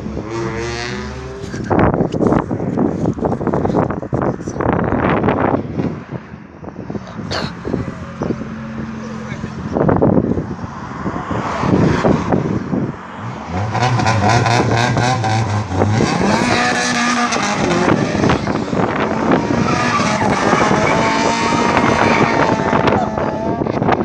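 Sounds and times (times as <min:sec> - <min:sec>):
car engine revving hard: 0:07.1 - 0:24.0.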